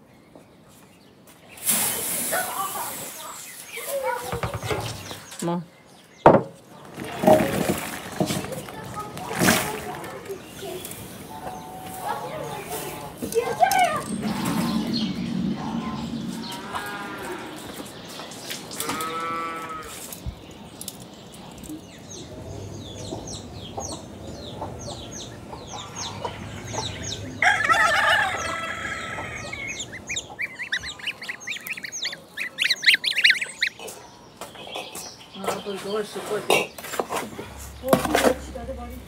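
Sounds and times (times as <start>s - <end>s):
chickens clucking: 6.2s - 19.2s, 20.9s - 38.9s
rooster crowing: 27.4s - 30.0s.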